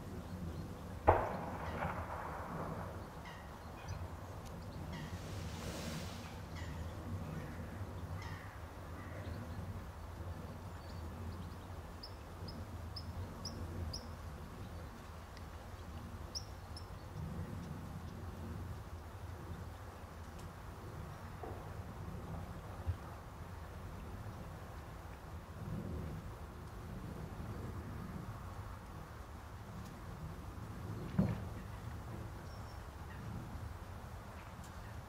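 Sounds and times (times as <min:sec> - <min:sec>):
birds calling: 0:02.7 - 0:05.2.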